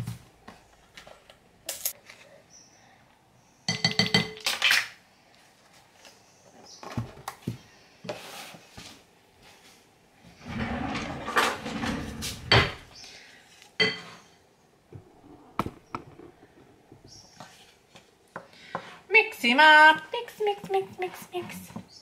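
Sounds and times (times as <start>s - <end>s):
kitchen utensils clattering: 10.4s - 12.9s.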